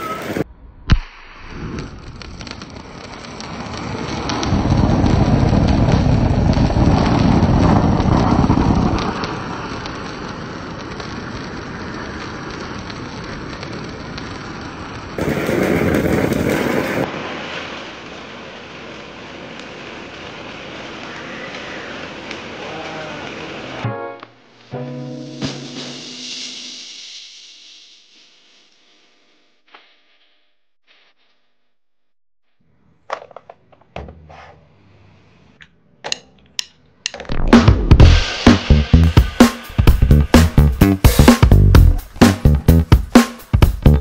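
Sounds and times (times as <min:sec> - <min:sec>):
firework fountain hissing: 0:00.0 - 0:00.4, 0:01.2 - 0:23.8, 0:25.6 - 0:31.1, 0:37.7 - 0:44.0
sharp crack: 0:00.0 - 0:24.4, 0:36.1 - 0:44.0.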